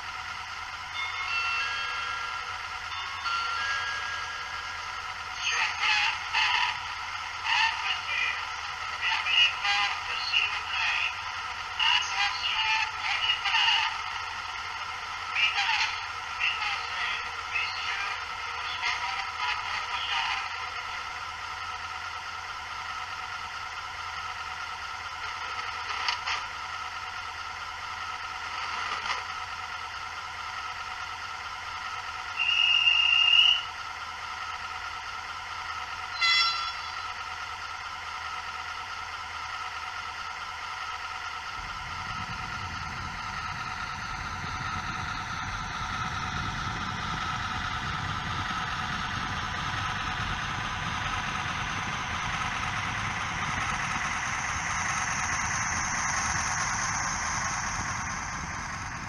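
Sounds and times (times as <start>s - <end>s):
low engine rumble: 0.0s - 59.0s
steady hum: 0.0s - 59.0s
model train horn toot: 32.3s - 33.7s, 36.1s - 37.2s.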